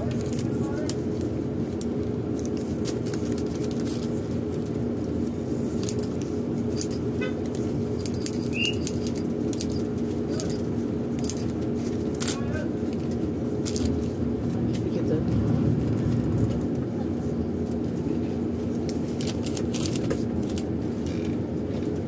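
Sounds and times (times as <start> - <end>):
bus engine and road drone: 0.0 - 22.0
short chirp: 8.5 - 8.9.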